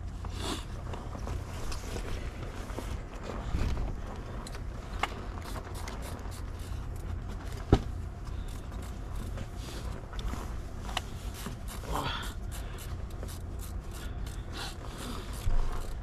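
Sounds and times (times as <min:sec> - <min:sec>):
low steady rumble: 0:00.0 - 0:16.0
clothing rustling: 0:00.1 - 0:11.9.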